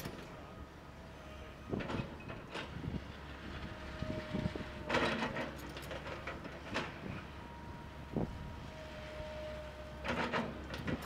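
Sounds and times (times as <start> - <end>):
excavator engine drone: 0.0 - 11.0
metal clanks and rattles: 4.8 - 7.1, 10.0 - 11.0.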